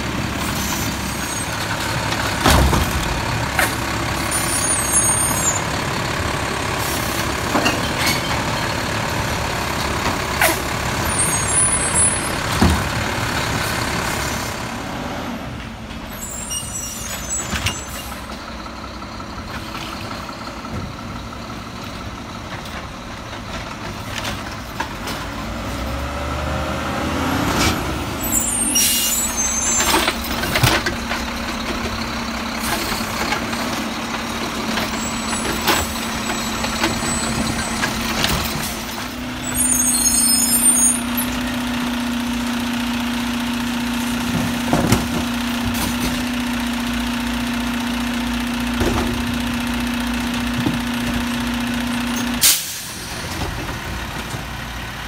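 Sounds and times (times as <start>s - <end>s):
diesel truck engine running: 0.0s - 16.4s, 17.0s - 55.0s
air brake hisses: 52.4s - 53.2s.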